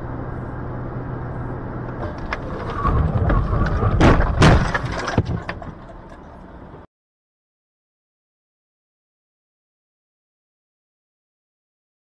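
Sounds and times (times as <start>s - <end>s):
road and engine noise: 0.0s - 6.9s
loud crashing impacts: 2.0s - 6.0s
knocks and rattles: 2.0s - 6.6s.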